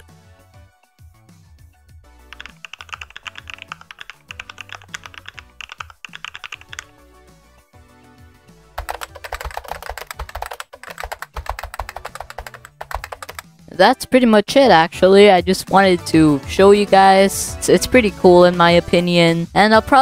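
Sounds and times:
background music: 0:00.0 - 0:20.0
rapid keyboard typing clicks: 0:02.3 - 0:06.9, 0:08.8 - 0:13.5.

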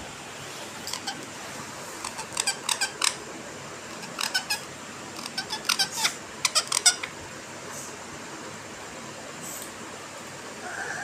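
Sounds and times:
parakeet chirping: 0:00.8 - 0:01.2, 0:02.0 - 0:03.2, 0:03.9 - 0:07.1.

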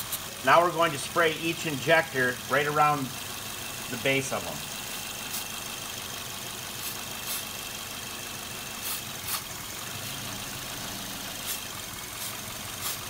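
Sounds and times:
car engine idling: 0:00.0 - 0:13.0
aerosol spray hissing: 0:05.0 - 0:05.6, 0:06.7 - 0:07.7, 0:08.6 - 0:09.5, 0:11.2 - 0:13.0.

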